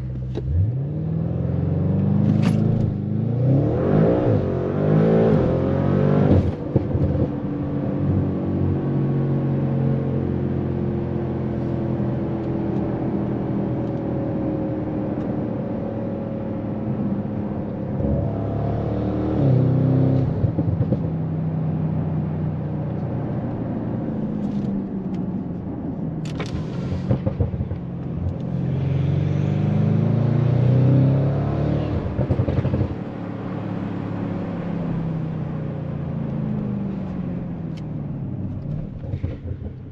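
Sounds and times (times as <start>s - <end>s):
car engine revving: 26.3s - 39.9s.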